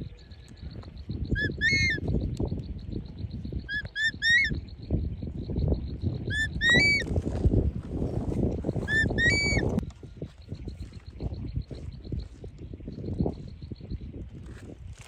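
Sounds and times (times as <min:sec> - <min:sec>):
hawk-eagle whistled calls: 0:01.2 - 0:02.1, 0:03.6 - 0:04.6, 0:06.2 - 0:07.0, 0:08.9 - 0:09.7.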